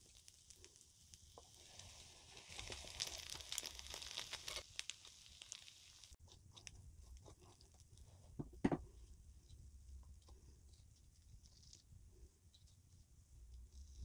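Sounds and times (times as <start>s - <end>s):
crispy food crunching: 0.0s - 8.3s
chewing: 2.4s - 8.2s.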